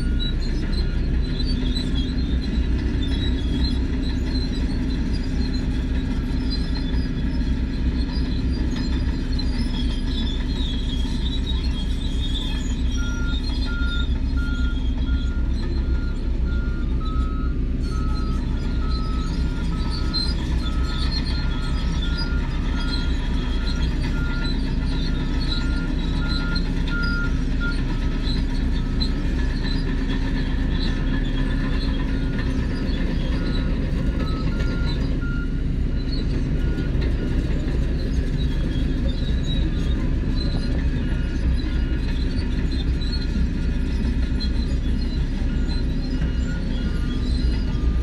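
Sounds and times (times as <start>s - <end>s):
bulldozer diesel engines running: 0.0s - 48.0s
two-tone reversing alarm beeping: 13.0s - 29.6s, 40.5s - 48.0s.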